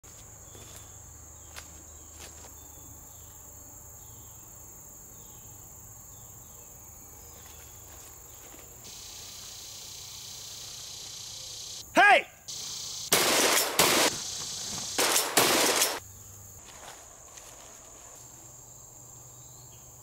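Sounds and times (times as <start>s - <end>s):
insects buzzing: 0.0s - 20.0s
broad hiss: 8.8s - 11.9s, 12.5s - 16.0s.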